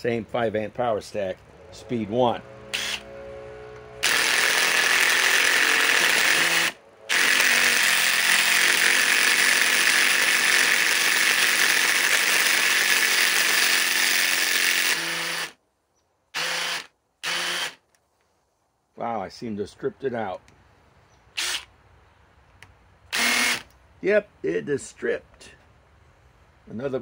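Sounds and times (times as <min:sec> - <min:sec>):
impact driver hammering screw: 0:04.0 - 0:15.6, 0:16.4 - 0:17.8, 0:23.1 - 0:23.7.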